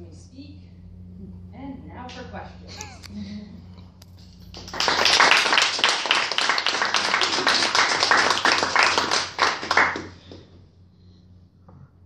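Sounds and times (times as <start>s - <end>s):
hands clapping close by: 4.4s - 10.5s
small group applauding: 4.4s - 10.6s.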